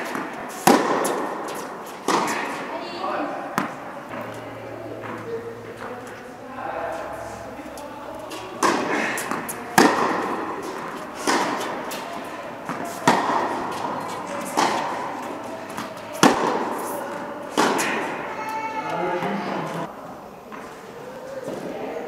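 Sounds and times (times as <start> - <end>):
tennis ball hit by rackets: 0.0 - 2.8, 3.5 - 4.4, 8.2 - 19.8.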